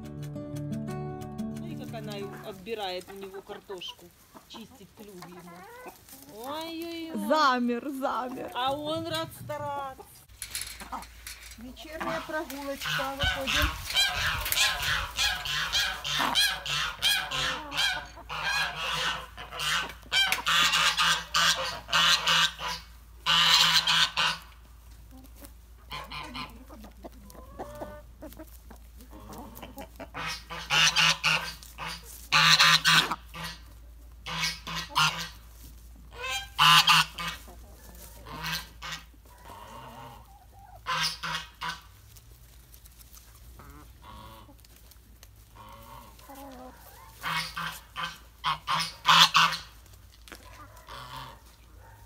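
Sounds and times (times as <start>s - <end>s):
fowl calling loudly: 12.0s - 24.7s, 25.8s - 26.6s, 29.2s - 35.5s, 36.1s - 41.9s, 45.5s - 49.8s, 50.4s - 51.5s.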